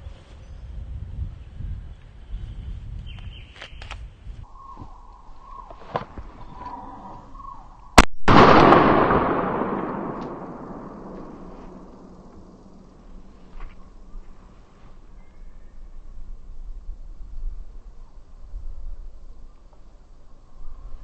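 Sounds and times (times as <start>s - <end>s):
wind on microphone: 0.0s - 7.9s, 15.8s - 19.6s
small clicks: 3.1s - 4.0s
handgun shot: 8.2s - 12.5s.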